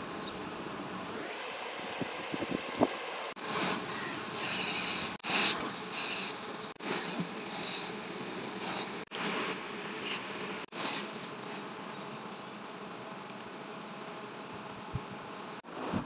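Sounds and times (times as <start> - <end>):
aerosol spray can hissing: 4.4 - 6.4, 7.5 - 8.0, 8.6 - 9.0, 10.0 - 10.2, 10.8 - 11.6.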